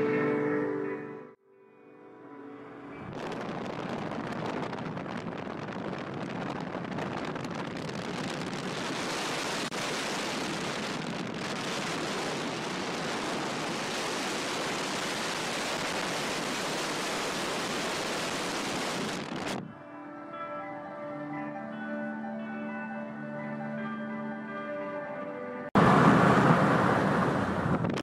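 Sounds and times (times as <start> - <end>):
road and wind noise from a car: 3.0 - 19.7, 25.8 - 28.0.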